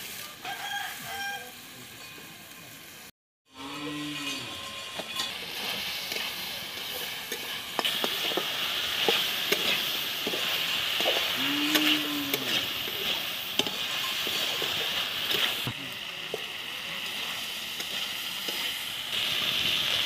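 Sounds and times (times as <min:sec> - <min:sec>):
food sizzling in a pan: 0:00.0 - 0:20.0
metal spatula scraping pan: 0:03.8 - 0:15.7.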